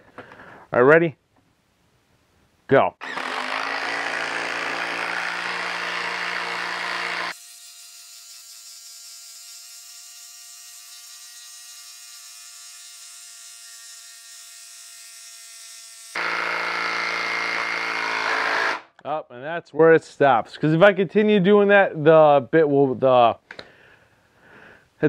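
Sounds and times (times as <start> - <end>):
impact driver hammering: 16.2 - 18.8.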